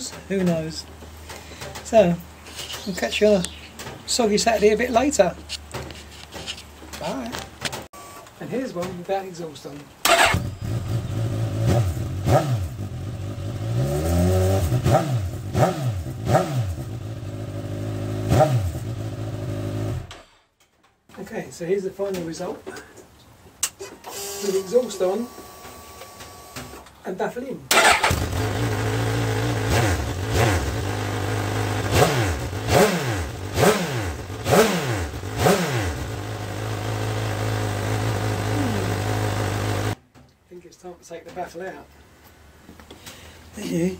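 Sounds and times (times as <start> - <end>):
motorcycle engine revving: 10.0 - 20.2, 27.7 - 40.0.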